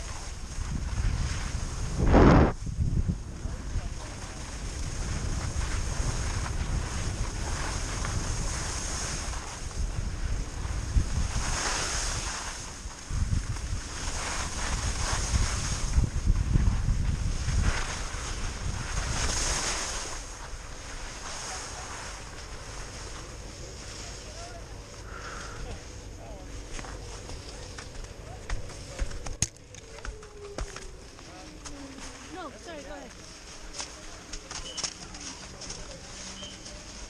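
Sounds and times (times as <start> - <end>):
skis scraping on snow: 0.0 - 2.6, 3.3 - 29.3, 30.7 - 37.0
wind buffeting microphone: 0.0 - 21.0.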